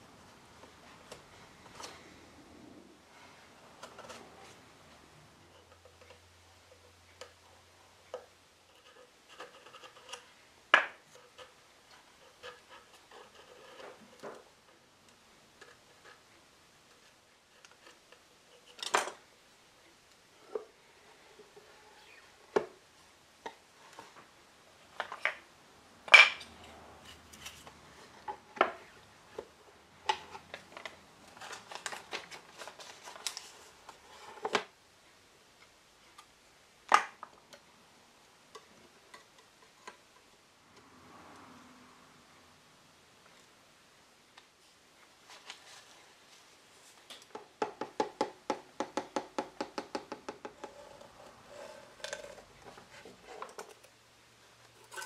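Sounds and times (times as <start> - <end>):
light scraping: 50.6 - 53.9.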